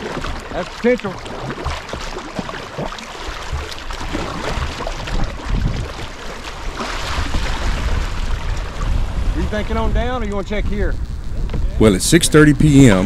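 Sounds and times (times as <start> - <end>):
paddle splashes: 0.0 - 9.6
moving water: 0.0 - 13.0
wind rumbling on microphone: 3.4 - 13.0.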